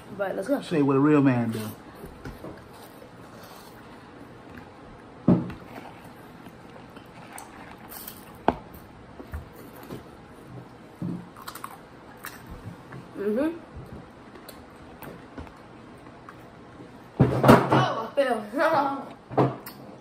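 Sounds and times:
crunching and chewing snacks: 0:11.2 - 0:12.5.

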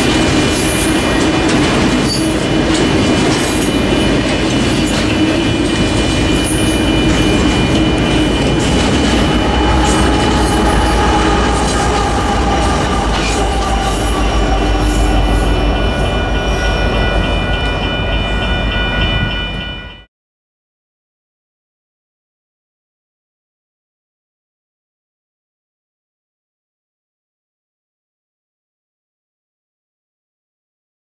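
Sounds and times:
train rumbling on rails: 0:00.0 - 0:20.1
high-pitched squeal: 0:00.1 - 0:19.8.

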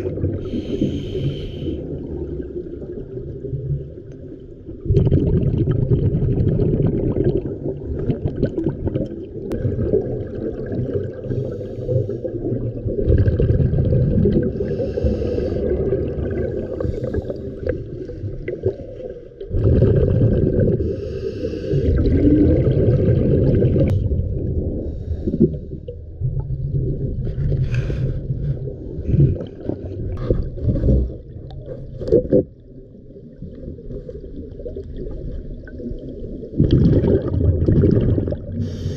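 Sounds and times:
diver bubbling exhalations: 0:04.8 - 0:11.4, 0:12.5 - 0:17.8, 0:19.5 - 0:24.0, 0:36.6 - 0:38.9.

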